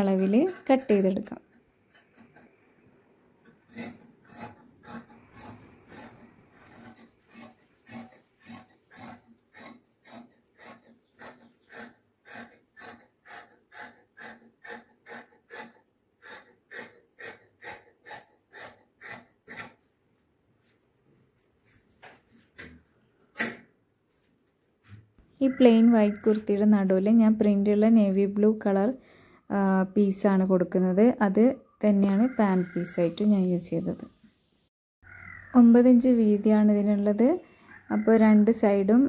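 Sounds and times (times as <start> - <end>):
shears snipping fabric: 3.5 - 19.9.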